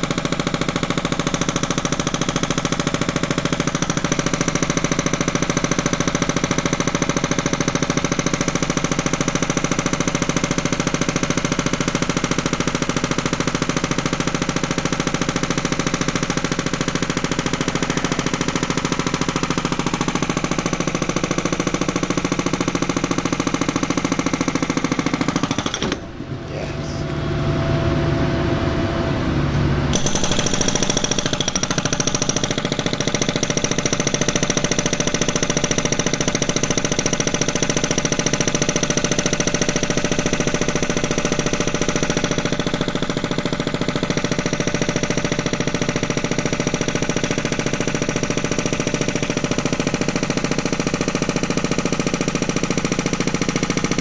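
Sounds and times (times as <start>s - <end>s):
hydraulic breaker hammering concrete: 0.0s - 26.4s, 29.9s - 54.0s
machine hum: 25.4s - 30.6s.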